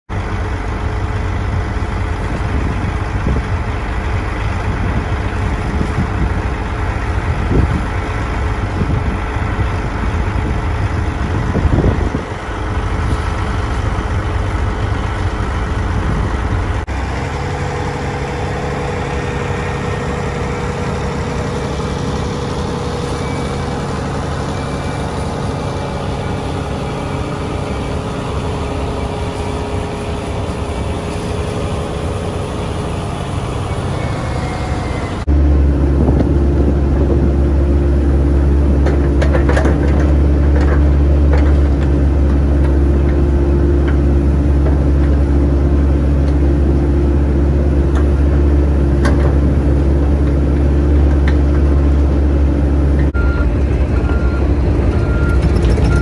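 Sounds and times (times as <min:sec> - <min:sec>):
diesel tractor engine idling: 0:00.1 - 0:56.0.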